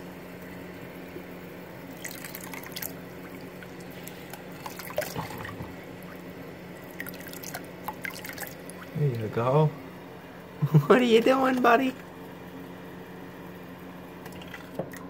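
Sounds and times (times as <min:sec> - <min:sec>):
tap water running into bath: 0:01.8 - 0:09.0, 0:14.2 - 0:15.0
light water splashes: 0:01.9 - 0:09.0.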